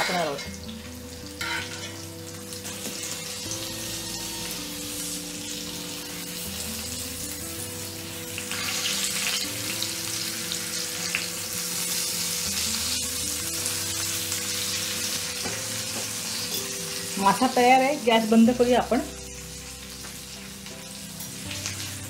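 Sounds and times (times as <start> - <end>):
fish sizzling in hot oil: 0.0 - 22.0
soft background music: 0.0 - 22.0.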